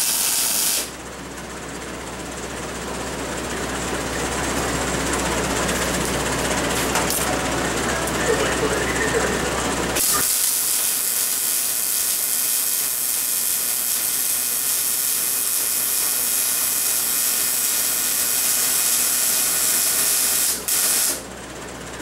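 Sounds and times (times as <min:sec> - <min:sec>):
welder arc crackling and hissing: 0:00.0 - 0:00.9, 0:09.9 - 0:21.2.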